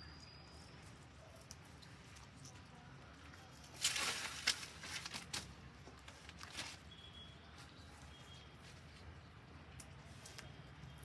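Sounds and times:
crackling rustle of stems: 0:00.8 - 0:07.0.

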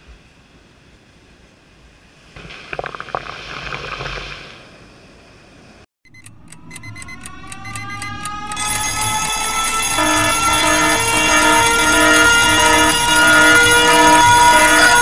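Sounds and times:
electronic song with ticking beat: 0:06.0 - 0:15.0.

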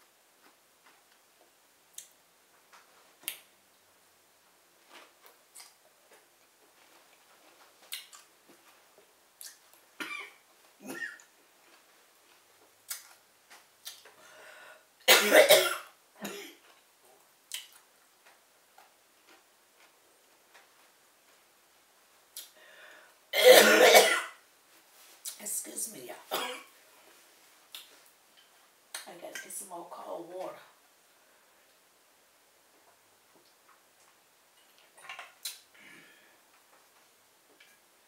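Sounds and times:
person coughing: 0:15.1 - 0:16.6, 0:23.4 - 0:24.4.

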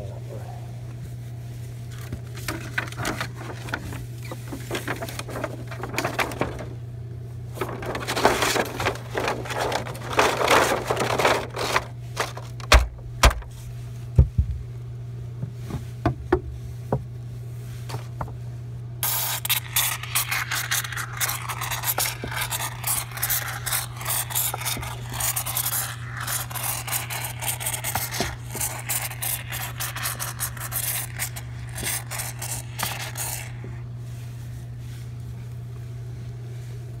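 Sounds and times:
steady low hum: 0:00.0 - 0:37.0
crackling rustling handling noise: 0:00.9 - 0:14.1.

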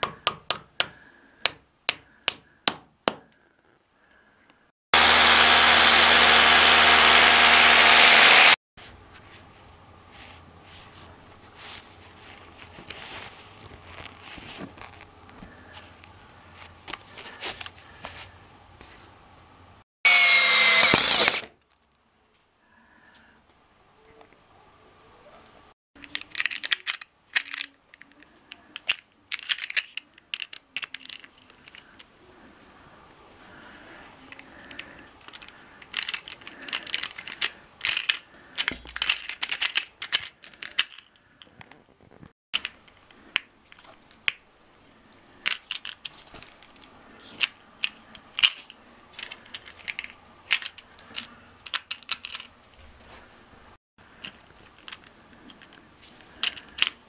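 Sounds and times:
rustling: 0:08.8 - 0:19.2
metal fittings clicking and clinking: 0:26.0 - 0:28.2.

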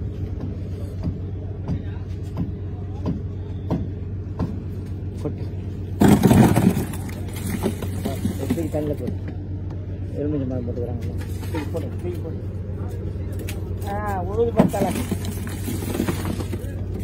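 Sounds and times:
prawns clattering into plastic crate: 0:06.0 - 0:09.1, 0:14.6 - 0:17.0.

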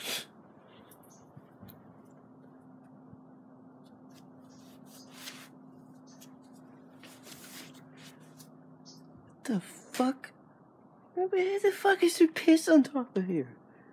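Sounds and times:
faint low hum: 0:00.0 - 0:13.9
rustling and scuffing: 0:03.8 - 0:08.6.

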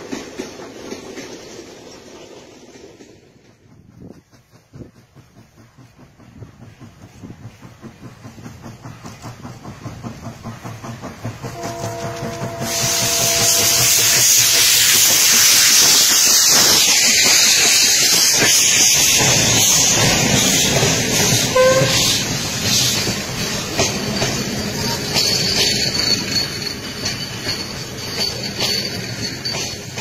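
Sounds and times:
steam locomotive chuffing: 0:00.0 - 0:30.0
train wheels clattering on rails: 0:00.0 - 0:30.0
steam venting hiss: 0:04.1 - 0:30.0
steam whistle: 0:11.6 - 0:15.5, 0:21.5 - 0:22.3.

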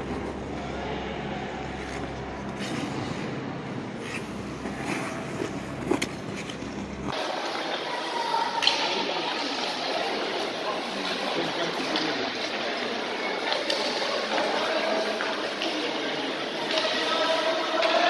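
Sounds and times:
hissy ice hockey game noise: 0:00.0 - 0:18.0
skate blades scraping ice: 0:04.0 - 0:07.2.

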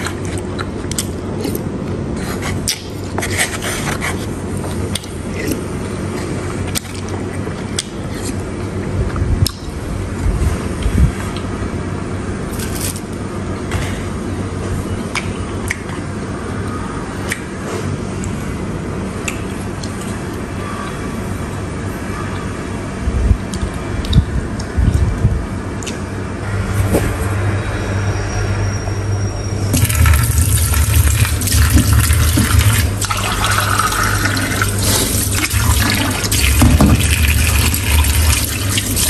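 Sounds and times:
low background rumble: 0:18.2 - 0:39.0.

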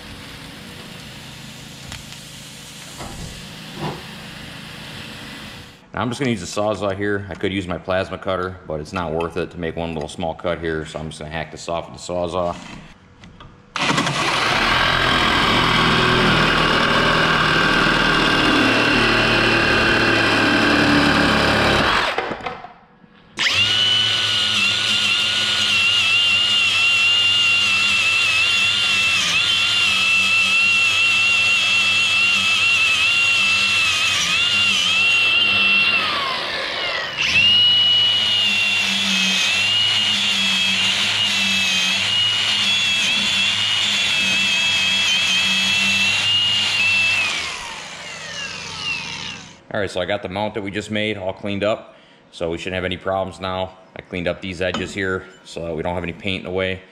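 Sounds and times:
angle grinder grinding steel: 0:13.8 - 0:22.2, 0:23.4 - 0:49.6
reciprocating saw cutting steel: 0:13.8 - 0:22.2, 0:23.4 - 0:49.6.

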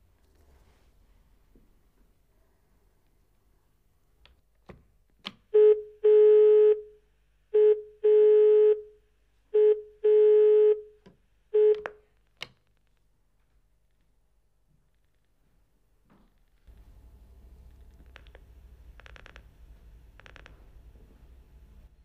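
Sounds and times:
telephone ringing tone: 0:09.6 - 0:10.9.

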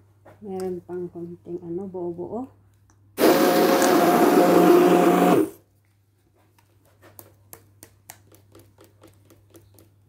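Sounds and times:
stick blender running: 0:03.2 - 0:05.6.

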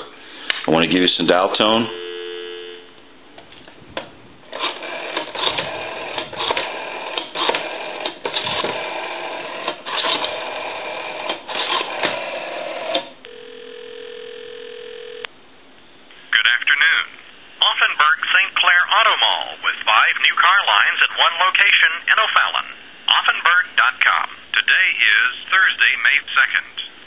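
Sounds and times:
telephone ringback tone: 0:01.8 - 0:02.9, 0:13.3 - 0:15.3
rotary phone dialing: 0:04.5 - 0:15.2.

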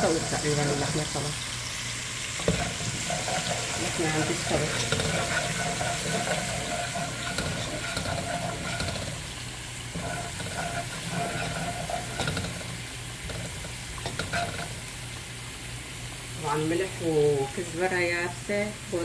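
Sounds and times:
garlic sizzling in oil: 0:00.0 - 0:19.0
wooden spoon scraping a pan: 0:02.3 - 0:14.9.

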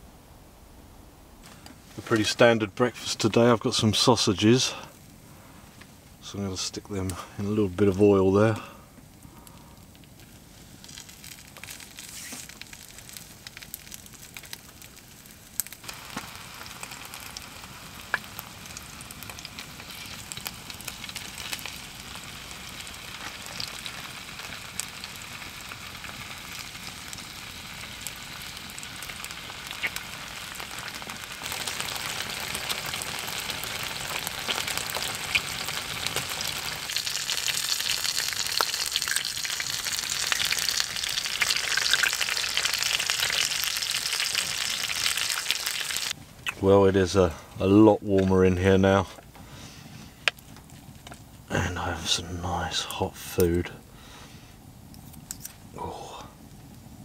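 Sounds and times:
food sizzling in frying pan: 0:10.5 - 0:46.2.

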